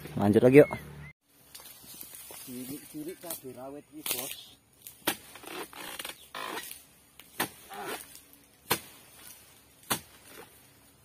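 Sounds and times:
chisel chopping into palm fronds: 0:04.0 - 0:10.6.

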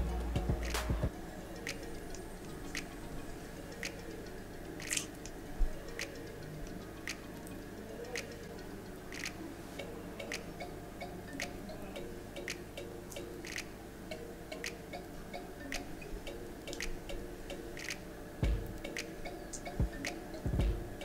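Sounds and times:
clock-like ticking beat: 0:00.0 - 0:21.0
soft background music: 0:00.0 - 0:21.0.

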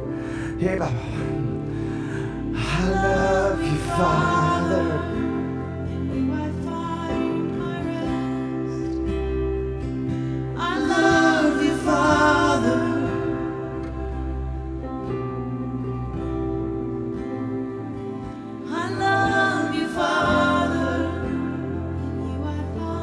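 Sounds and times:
person singing: 0:00.0 - 0:09.1, 0:10.5 - 0:14.5, 0:18.7 - 0:23.0
acoustic guitar: 0:00.0 - 0:23.0
keyboard chords: 0:00.0 - 0:23.0.

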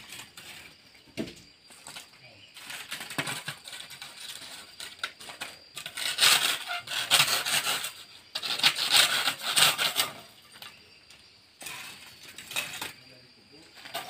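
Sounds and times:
blade sawing charcoal: 0:02.6 - 0:10.8.

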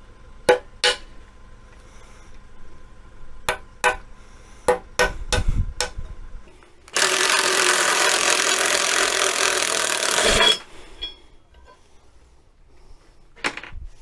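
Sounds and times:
hammer striking metal: 0:00.5 - 0:01.1
cordless drill drilling steel: 0:06.9 - 0:10.6.

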